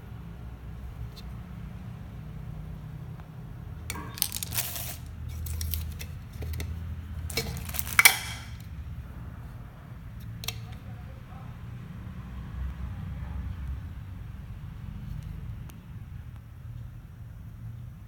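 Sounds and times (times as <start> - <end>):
plastic parts clattering: 3.9 - 6.7, 7.3 - 8.6.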